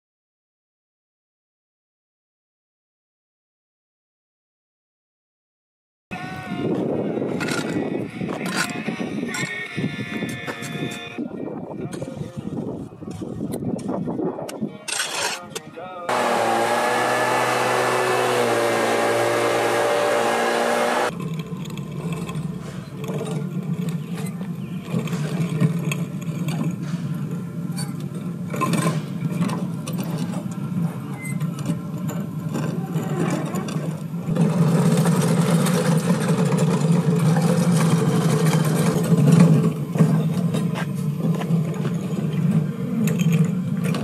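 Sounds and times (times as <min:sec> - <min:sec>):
crack-sealing machine humming: 0:16.1 - 0:21.1.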